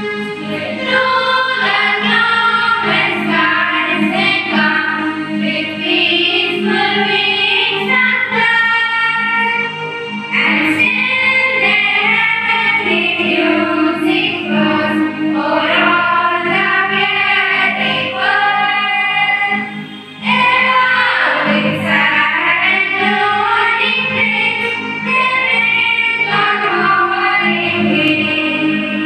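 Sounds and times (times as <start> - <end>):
girls singing a carol: 0.0 - 9.7, 10.3 - 29.0.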